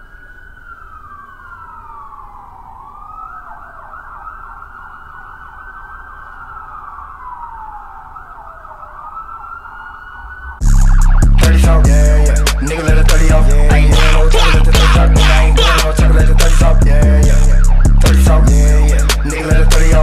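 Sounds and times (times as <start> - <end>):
siren wailing: 0.0 - 20.0.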